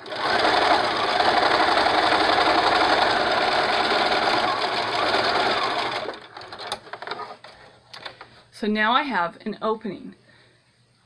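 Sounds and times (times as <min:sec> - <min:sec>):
sewing machine running: 0:00.0 - 0:07.0.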